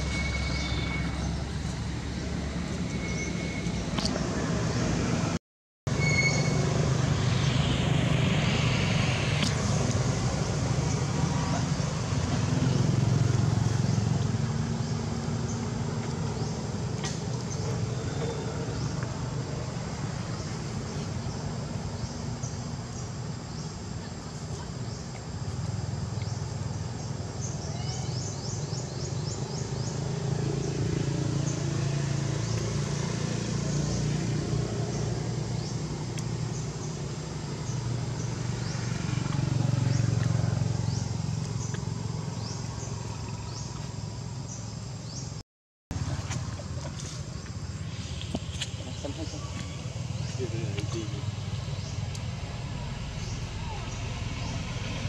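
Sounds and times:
low rumble: 6.6 - 12.6, 48.1 - 55.0.

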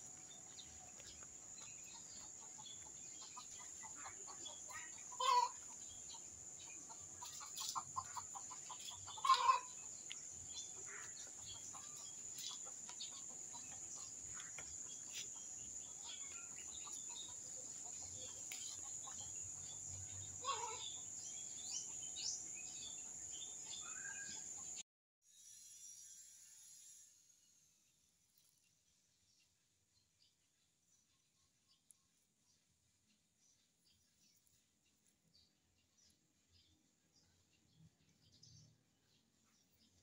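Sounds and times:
chickens clucking: 1.0 - 21.2.

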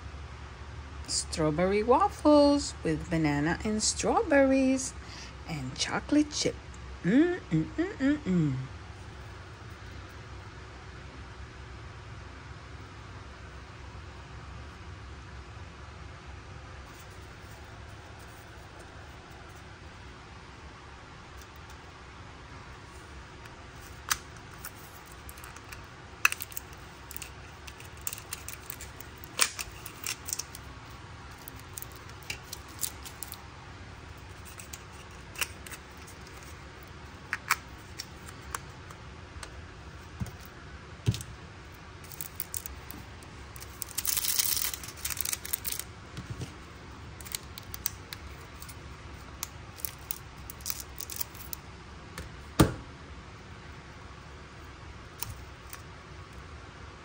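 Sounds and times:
small box clicks and crinkles: 23.8 - 33.4, 34.2 - 38.7, 42.0 - 46.5, 47.2 - 51.6.

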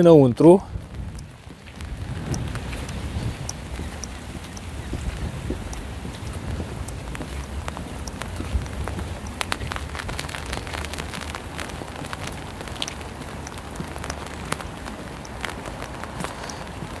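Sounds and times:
rain falling: 0.0 - 17.0
raindrops ticking close by: 0.0 - 17.0
low rumble: 0.6 - 12.7.

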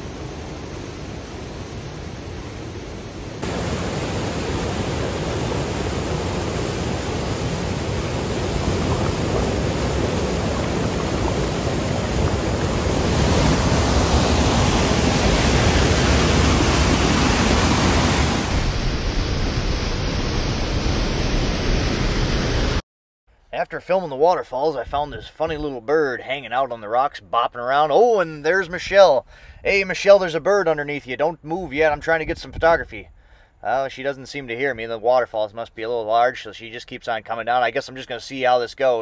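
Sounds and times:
waterfall rushing: 1.2 - 19.1.

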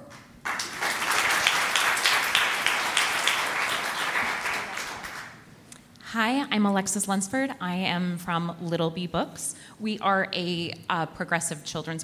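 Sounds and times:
audience applauding: 0.1 - 5.4.

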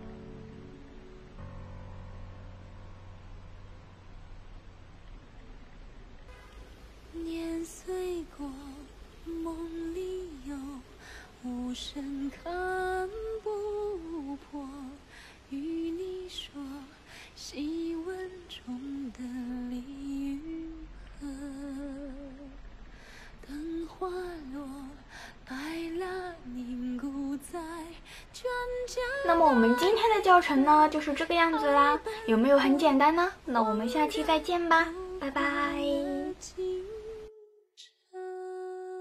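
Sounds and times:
woman singing: 7.1 - 22.6, 23.4 - 39.0.

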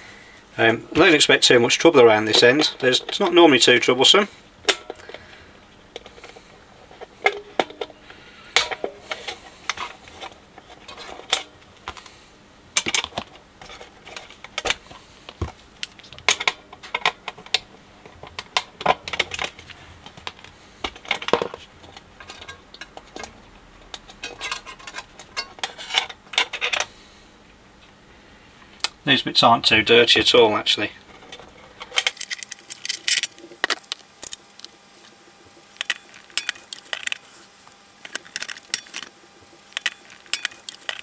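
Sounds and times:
pliers clicking on metal levers: 39.8 - 41.0.

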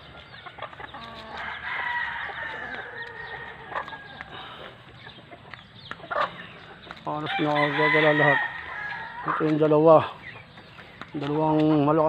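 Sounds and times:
hens clucking: 0.0 - 12.0
rooster crowing: 1.3 - 4.2, 7.3 - 9.4.

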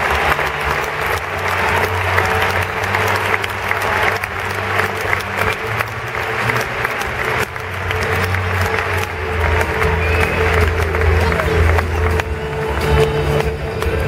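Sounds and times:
large crowd applauding: 0.0 - 14.0.

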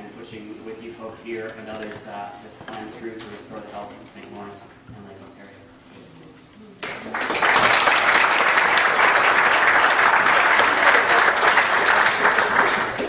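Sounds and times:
audience applauding: 6.8 - 13.0.

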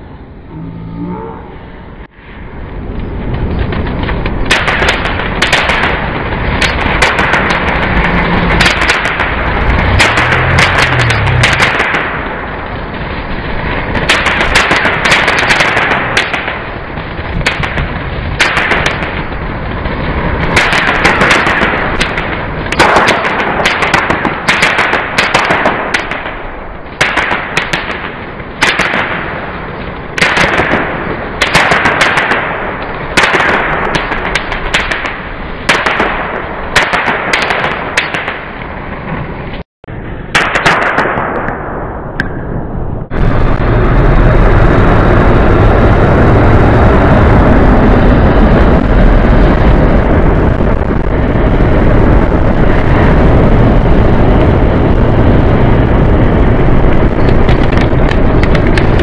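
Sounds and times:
loud steady rumble: 0.0 - 59.0
firework fountain hissing and crackling: 2.0 - 39.6, 43.1 - 59.0.

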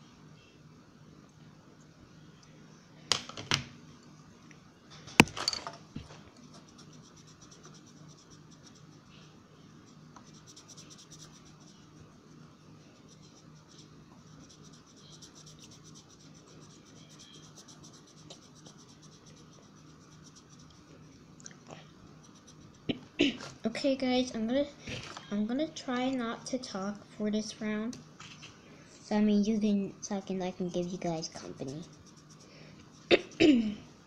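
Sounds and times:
sharp knocks and clatters: 5.0 - 6.1
pencil scratching on paper: 6.6 - 9.1, 9.8 - 12.2, 13.0 - 21.1, 22.2 - 22.9, 30.8 - 33.1.

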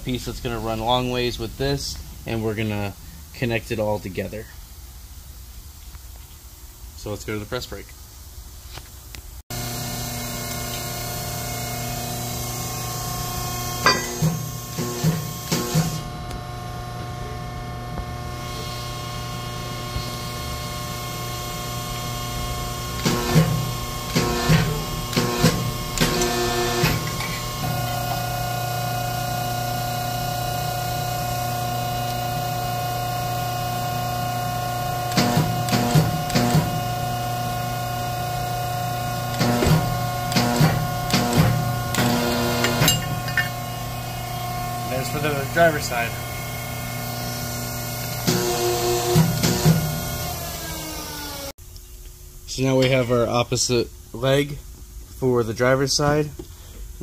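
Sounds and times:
metal clanks and clicks: 13.8 - 14.4, 39.4 - 43.6
press brake humming: 38.5 - 46.6.

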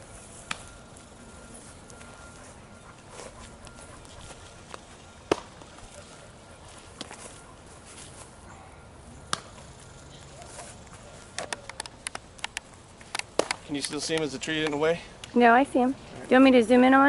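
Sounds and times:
baseball smacking into glove: 5.3 - 5.6, 9.3 - 9.6, 13.1 - 13.6.

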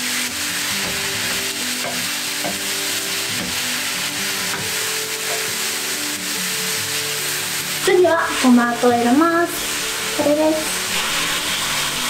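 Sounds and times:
meat and onion sizzling in a pan: 0.0 - 12.0.

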